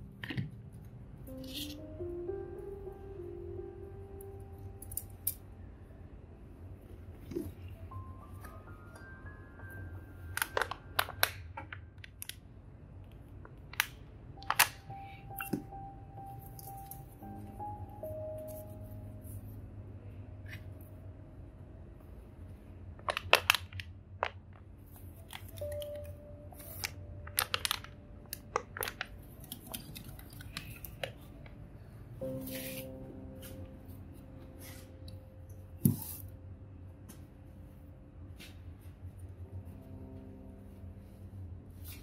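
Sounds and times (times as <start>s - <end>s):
plastic wrapping crinkling: 10.3s - 12.4s, 23.0s - 31.6s.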